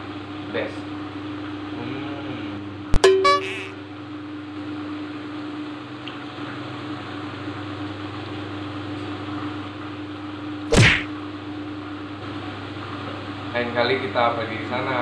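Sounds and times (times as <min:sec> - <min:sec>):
motor hum: 0:02.8 - 0:04.2, 0:10.6 - 0:11.2
loud swish: 0:10.7 - 0:11.1.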